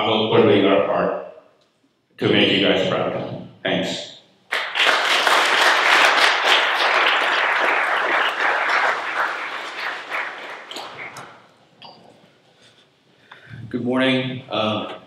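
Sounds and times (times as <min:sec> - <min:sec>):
audience applauding: 0:04.5 - 0:11.5.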